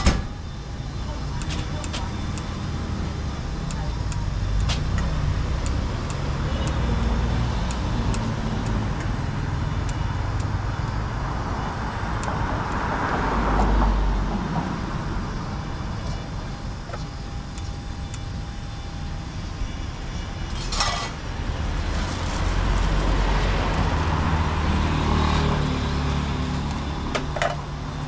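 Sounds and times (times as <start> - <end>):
street traffic: 0.0 - 28.0
tongs clicking against metal bowl: 3.6 - 6.9
vehicle passing: 4.9 - 16.0, 21.4 - 27.1.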